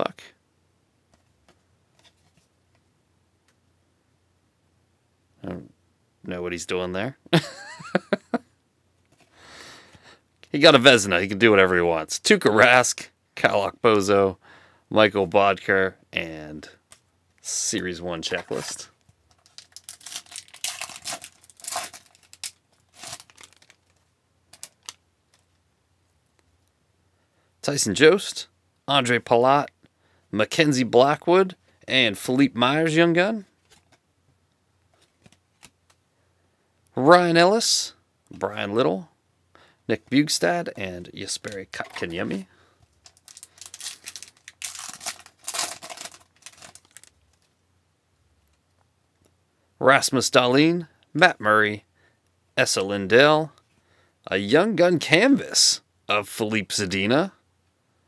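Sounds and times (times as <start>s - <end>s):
foil wrapper tearing and crinkling: 18.4s - 25.0s, 43.0s - 47.5s.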